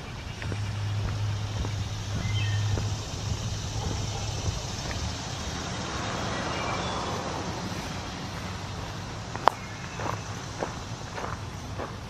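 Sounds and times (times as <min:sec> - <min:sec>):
car passing by: 0:00.0 - 0:12.0
faint bird chirps: 0:02.1 - 0:05.0.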